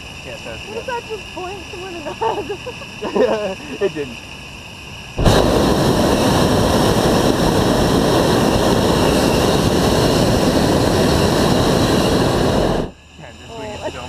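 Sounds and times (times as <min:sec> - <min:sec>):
propane burner blast: 0:05.1 - 0:13.0.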